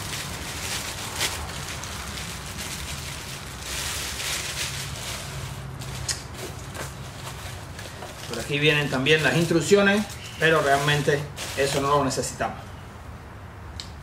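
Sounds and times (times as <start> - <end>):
plastic bag crinkling: 0.0 - 12.4.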